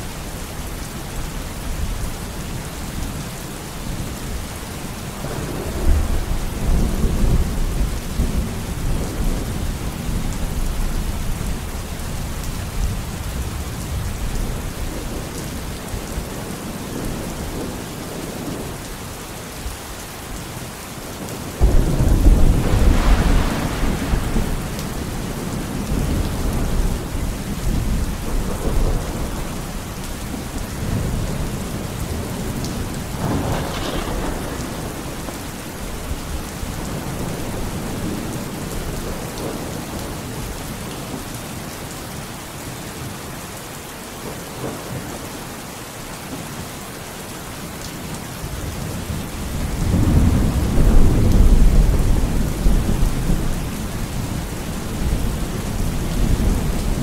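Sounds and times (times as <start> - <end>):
steady rain: 0.0 - 57.0
rolling thunder: 5.2 - 11.0, 21.2 - 40.2, 49.6 - 57.0.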